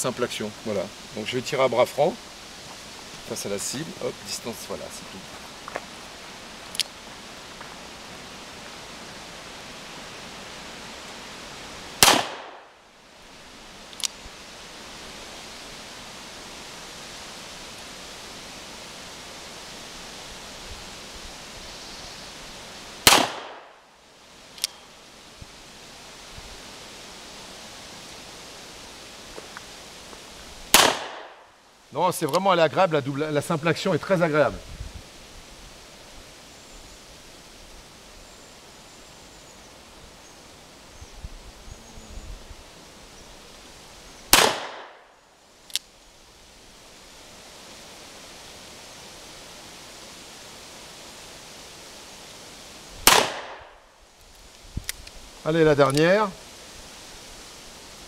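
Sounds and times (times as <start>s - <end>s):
steady hiss: 0.0s - 58.0s
revolver gunshot: 12.0s - 12.7s, 23.0s - 23.7s, 30.7s - 31.4s, 44.3s - 45.0s, 53.0s - 53.7s.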